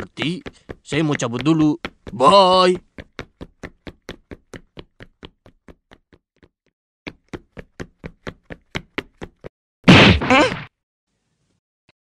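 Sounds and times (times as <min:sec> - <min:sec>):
cartoon jogging footsteps: 0:00.0 - 0:10.7
loud crash: 0:09.9 - 0:10.6.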